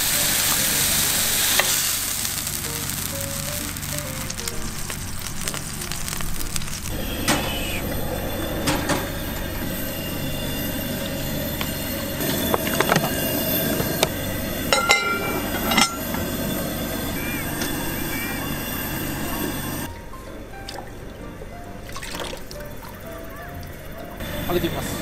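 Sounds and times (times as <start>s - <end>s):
ribs sizzling in a pot: 0.0s - 8.4s, 9.2s - 19.9s, 24.2s - 25.0s
metal lid clinking: 14.7s - 16.2s.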